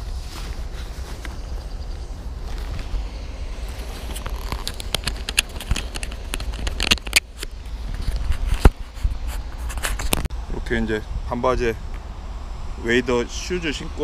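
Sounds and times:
low wind rumble: 0.0 - 14.0
fishing gear clicks and knocks: 3.8 - 8.7.

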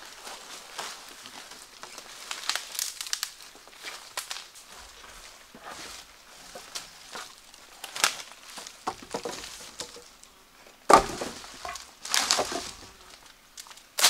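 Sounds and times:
dry wood snapping and crunching: 0.0 - 14.0
sharp wood crack: 1.8 - 4.6, 6.5 - 14.0.

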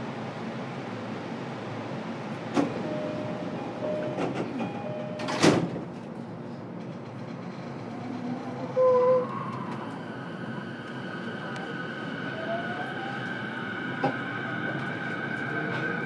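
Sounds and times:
stopped train hum: 0.0 - 16.0
train doors shutting clunk: 2.5 - 6.1.

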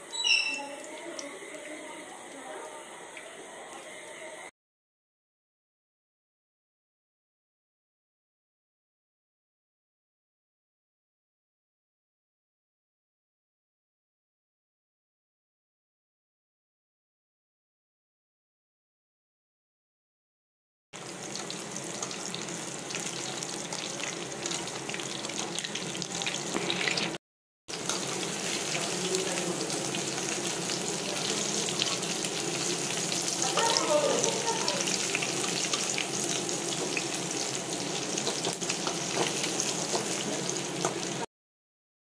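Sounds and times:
food sizzling in hot oil: 0.0 - 4.4, 21.0 - 41.3.

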